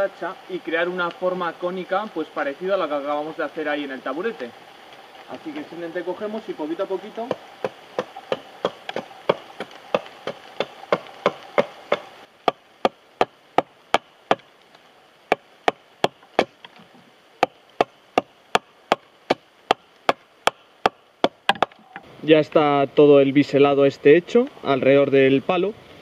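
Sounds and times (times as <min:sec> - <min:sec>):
axe chopping log: 0:17.4 - 0:21.8.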